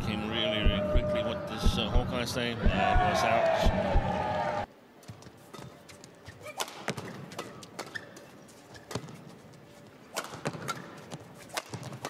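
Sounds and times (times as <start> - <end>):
shoes squeaking on court: 5.0 - 12.0
racket hitting shuttlecock: 10.1 - 12.0.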